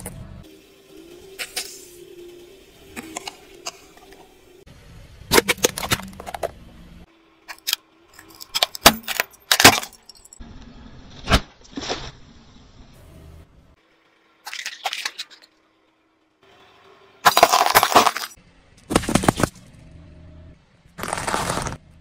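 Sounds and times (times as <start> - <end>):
objects cracking under car tyre: 5.3 - 6.6, 7.5 - 10.1, 17.2 - 19.7, 21.0 - 21.8.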